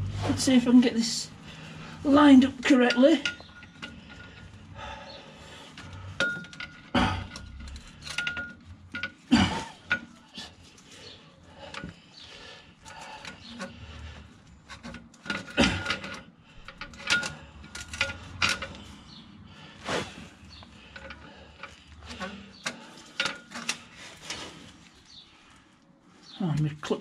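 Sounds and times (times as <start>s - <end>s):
metal clinking and knocking: 2.6s - 4.8s, 5.7s - 10.6s, 14.6s - 19.2s, 20.5s - 24.3s.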